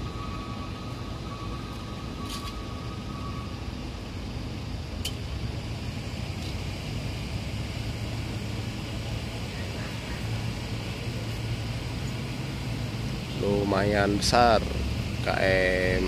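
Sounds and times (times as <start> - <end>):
ferry engines droning: 0.0 - 16.0
open-air background noise: 0.0 - 16.0.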